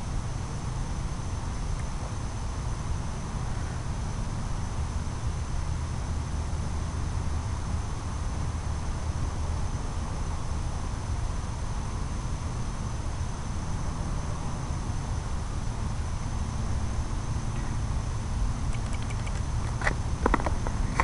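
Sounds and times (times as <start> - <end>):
low steady rumble: 0.0 - 21.0
insect chorus trilling: 11.4 - 21.0.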